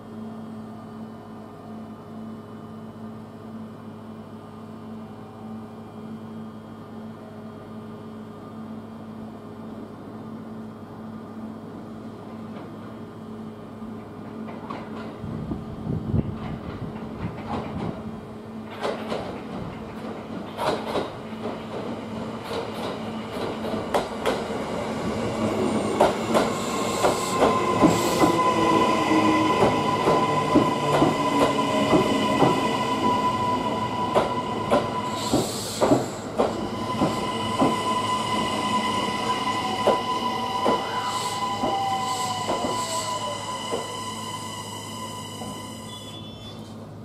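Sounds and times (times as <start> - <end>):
train wheels clicking over rail joints: 16.2 - 18.0, 18.7 - 24.5, 25.6 - 28.4, 29.6 - 32.7, 34.1 - 37.8.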